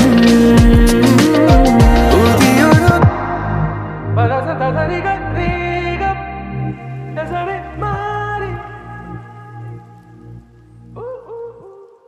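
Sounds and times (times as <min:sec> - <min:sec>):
background music melody: 0:00.0 - 0:12.0
held low bass notes: 0:01.4 - 0:11.0.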